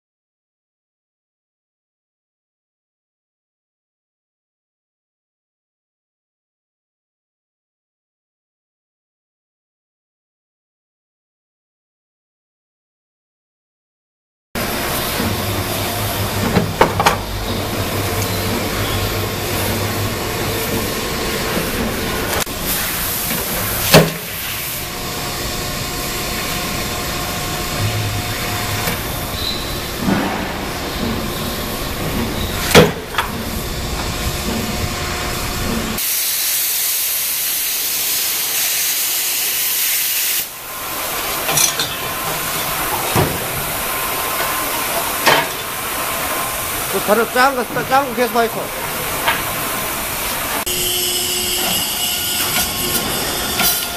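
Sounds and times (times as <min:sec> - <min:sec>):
hydraulic press humming: 0:14.6 - 0:36.6, 0:40.5 - 0:53.9
strong steady hiss: 0:35.2 - 0:50.6.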